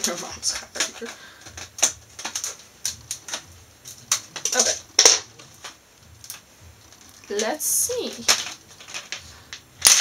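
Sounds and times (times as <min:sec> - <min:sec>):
scissors snipping plastic packaging: 0:00.0 - 0:06.4, 0:09.8 - 0:10.0
plastic packaging crackling: 0:00.0 - 0:10.0.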